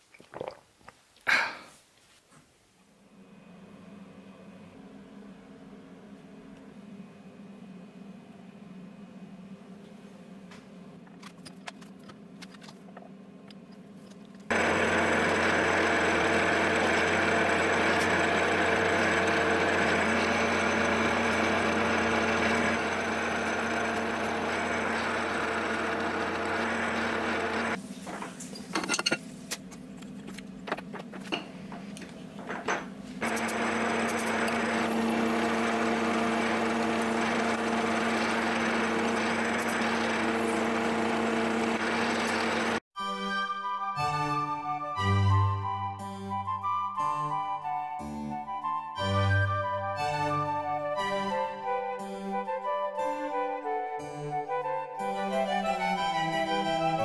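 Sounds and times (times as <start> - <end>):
milling machine drilling: 14.5 - 27.8, 33.2 - 42.8.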